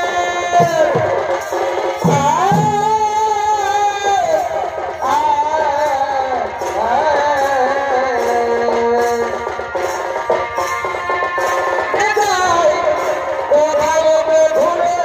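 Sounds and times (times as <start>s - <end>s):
hand drums beating: 0.0s - 15.0s
bending melody line: 2.0s - 3.6s.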